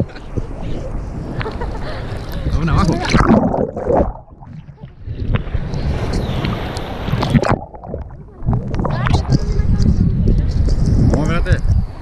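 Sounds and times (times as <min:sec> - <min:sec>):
sea waves splashing: 0:00.0 - 0:10.2.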